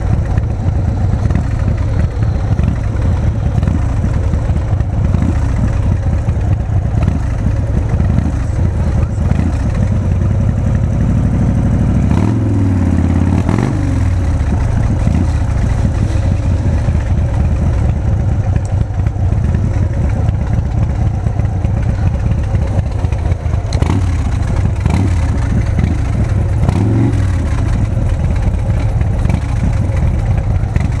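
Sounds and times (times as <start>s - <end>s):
motorcycle engine idling: 0.0s - 31.0s.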